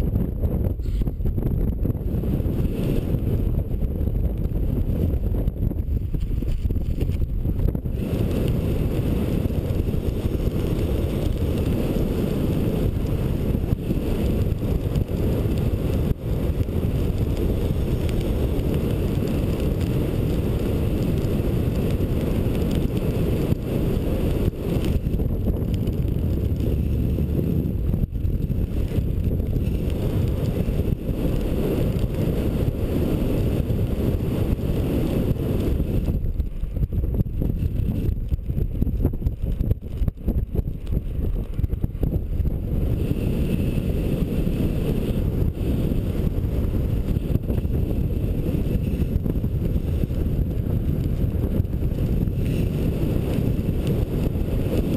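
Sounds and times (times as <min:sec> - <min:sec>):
wind rushing over microphone: 0:00.0 - 0:54.9.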